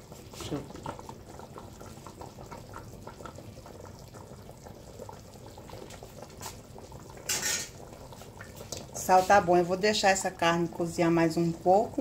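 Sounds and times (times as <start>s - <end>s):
broth bubbling in a pot: 0.0s - 12.0s.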